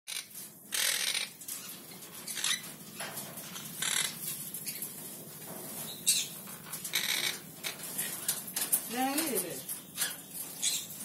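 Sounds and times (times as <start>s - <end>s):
parakeet harsh calls: 0.1s - 1.4s, 3.8s - 4.2s, 6.9s - 7.8s.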